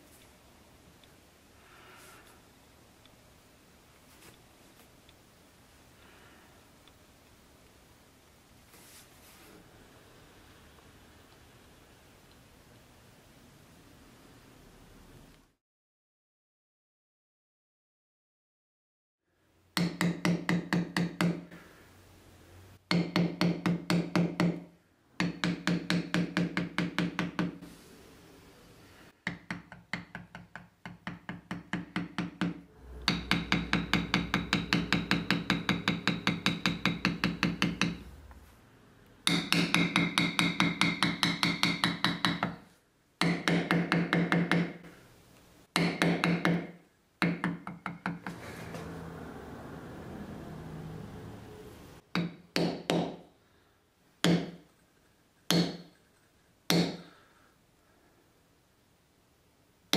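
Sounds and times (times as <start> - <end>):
mallet tapping leather stamping tool: 19.8 - 21.5, 22.9 - 27.6, 29.2 - 38.1, 39.2 - 42.6, 43.2 - 44.9, 45.8 - 48.3, 52.1 - 53.2, 54.2 - 54.7, 55.5 - 55.9, 56.7 - 57.1.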